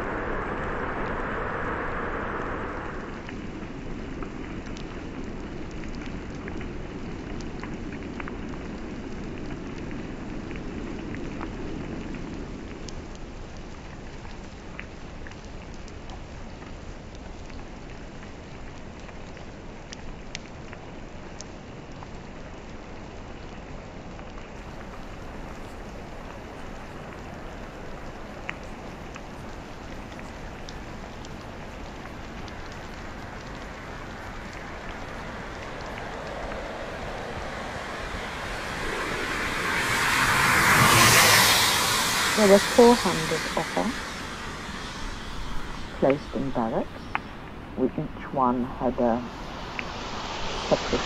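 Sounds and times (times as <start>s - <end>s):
low rumble: 0.0s - 6.0s, 24.6s - 51.0s
steady rain hiss: 0.0s - 51.0s.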